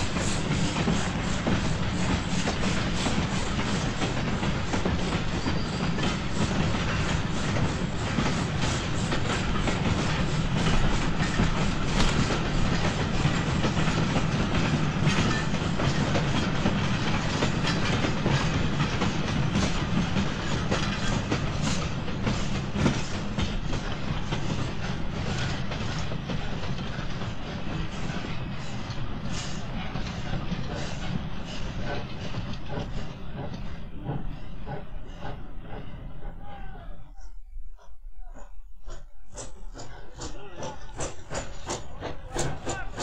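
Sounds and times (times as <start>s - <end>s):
train wheels clicking on rail joints: 0.0s - 43.0s.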